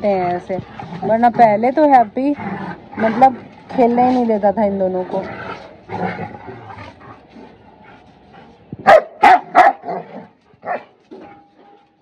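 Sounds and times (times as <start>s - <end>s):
dog barking: 8.9s - 10.1s.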